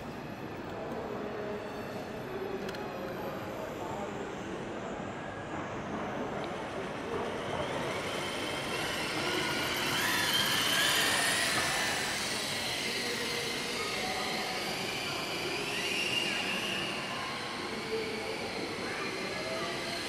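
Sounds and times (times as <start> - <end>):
model plane motors whirring: 6.3 - 20.0.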